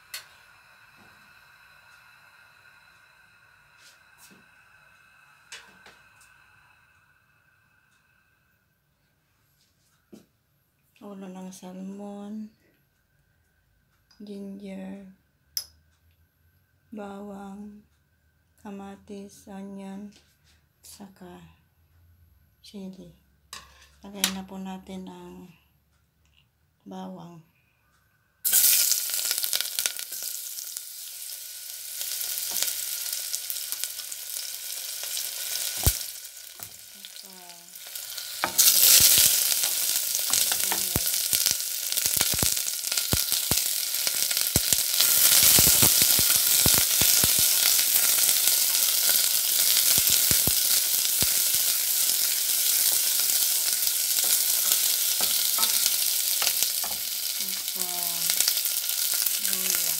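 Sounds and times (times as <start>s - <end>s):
garlic sizzling in hot oil: 28.4s - 59.9s.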